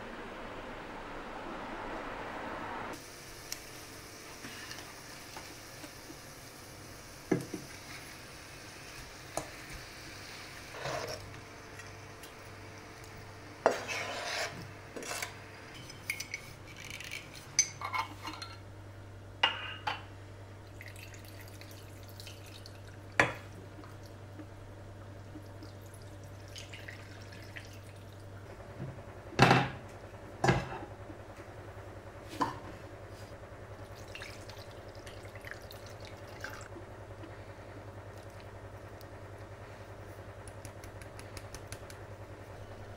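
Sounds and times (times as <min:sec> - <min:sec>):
faint low hum: 0:00.0 - 0:03.6.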